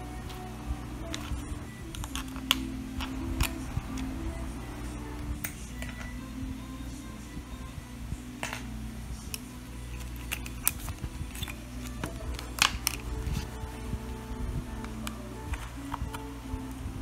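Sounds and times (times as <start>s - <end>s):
metal clips clicking onto plastic: 1.9s - 4.0s, 9.3s - 13.4s.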